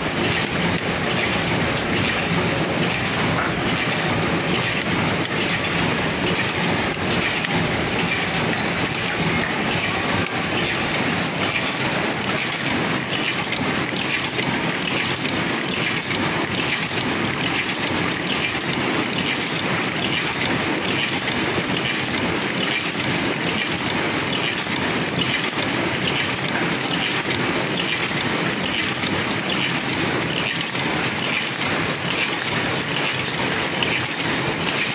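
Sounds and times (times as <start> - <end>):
machine mechanical clatter: 0.0 - 34.9.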